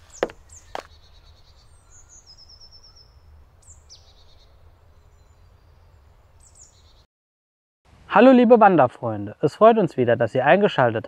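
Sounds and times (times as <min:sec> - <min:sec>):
birds chirping: 0:00.0 - 0:07.1.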